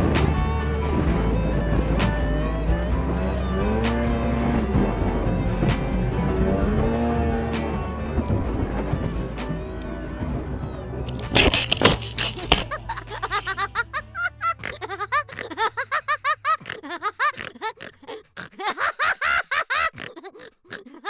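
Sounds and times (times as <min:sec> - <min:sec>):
snowmobile engine low hum: 0:00.0 - 0:16.6
rapid bouncing laughter: 0:11.9 - 0:21.0.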